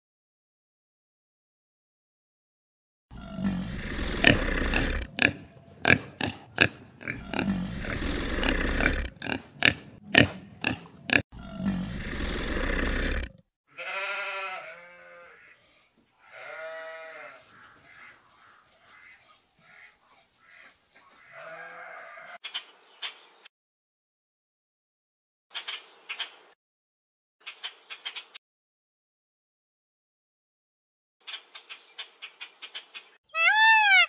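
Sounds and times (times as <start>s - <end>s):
animal pitched calls: 3.1s - 15.5s, 33.3s - 34.0s
animal snuffling: 3.2s - 13.4s.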